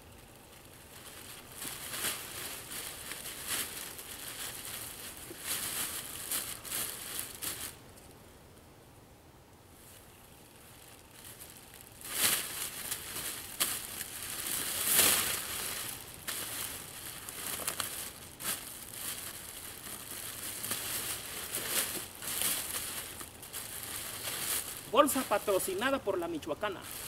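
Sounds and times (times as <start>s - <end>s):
plastic bag crinkling: 0.0s - 7.8s, 10.6s - 27.0s.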